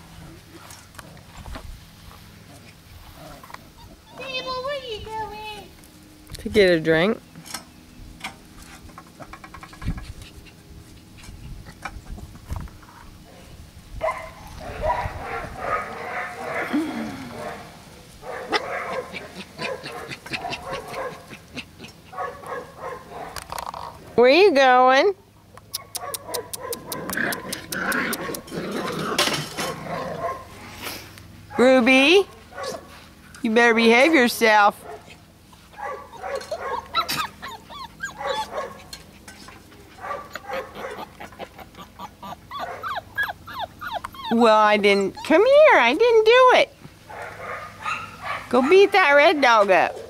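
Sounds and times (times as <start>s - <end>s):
puppies yelping: 3.3s - 4.8s, 18.3s - 23.4s, 34.8s - 45.9s, 47.1s - 50.0s
puppies yipping: 3.6s - 4.8s, 18.3s - 23.4s, 25.8s - 29.0s, 34.8s - 45.8s, 47.1s - 49.0s.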